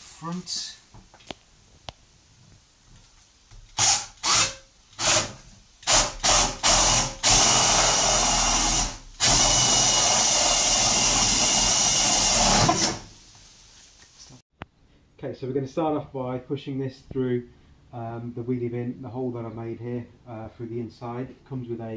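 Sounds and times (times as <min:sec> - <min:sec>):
cordless drill boring through plastic: 0:03.8 - 0:13.1.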